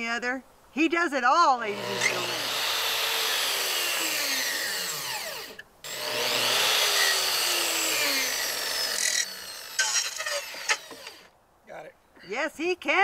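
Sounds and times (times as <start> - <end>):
circular saw cutting plywood: 1.7 - 11.3.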